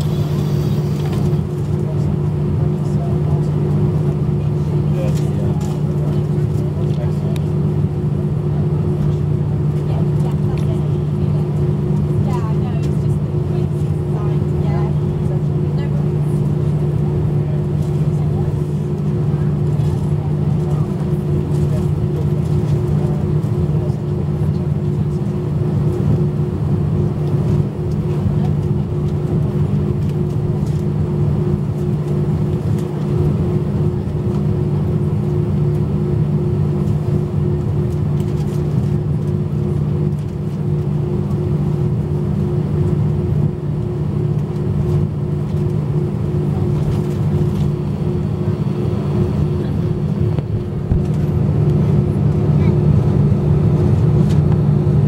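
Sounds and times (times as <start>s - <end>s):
airplane cabin drone: 0.0s - 55.0s.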